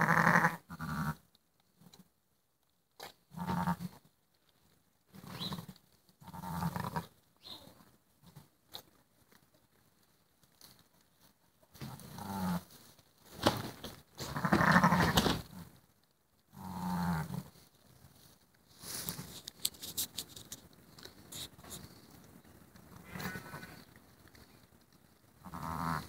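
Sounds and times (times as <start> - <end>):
sheep bleating: 0.0 - 1.2, 6.2 - 7.1, 14.2 - 15.2, 23.0 - 24.0, 25.4 - 26.0
rustling in straw: 3.5 - 26.0.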